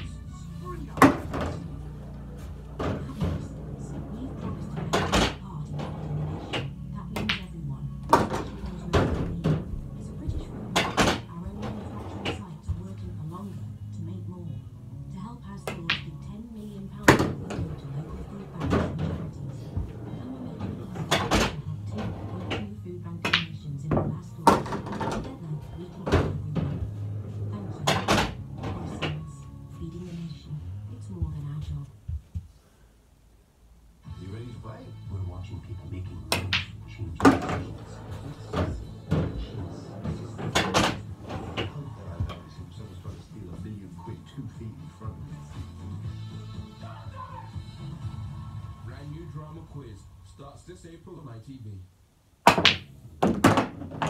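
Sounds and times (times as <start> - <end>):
television sound: 0.0 - 54.0
pool balls clicking: 0.8 - 12.4, 15.6 - 29.2, 36.3 - 43.6, 52.4 - 54.0.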